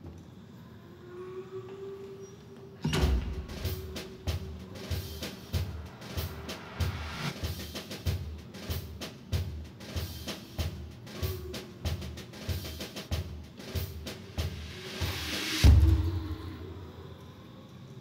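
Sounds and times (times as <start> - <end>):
background music with drum beat: 3.0 - 16.6.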